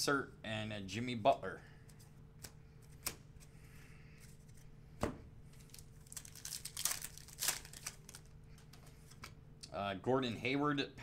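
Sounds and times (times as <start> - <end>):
wrapper tearing and crinkling: 5.6 - 8.3.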